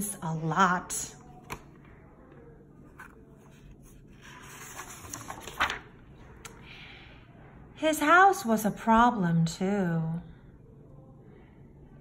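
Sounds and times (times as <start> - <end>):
paper page turning: 2.9 - 6.6.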